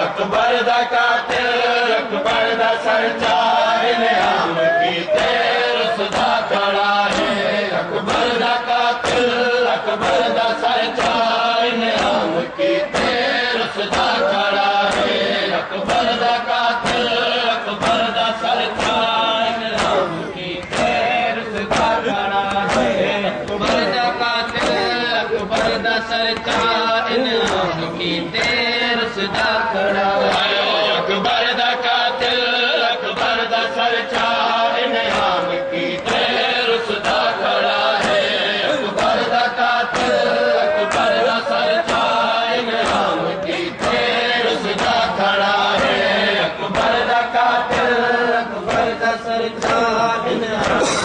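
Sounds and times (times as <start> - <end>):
voices chanting a lament: 0.0 - 51.0
hands slapping chests: 6.0 - 6.4, 18.8 - 20.0, 20.6 - 26.8.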